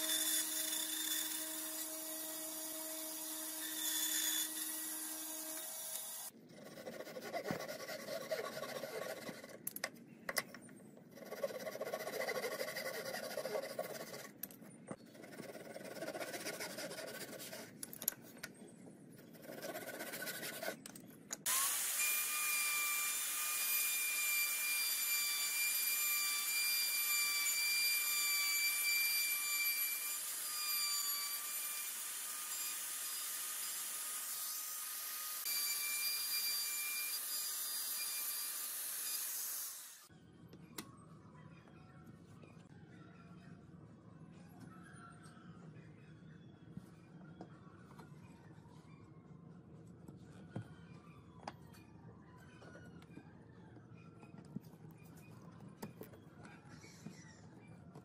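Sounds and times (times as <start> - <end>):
handsaw cutting wood: 3.1 - 9.4, 11.2 - 14.3.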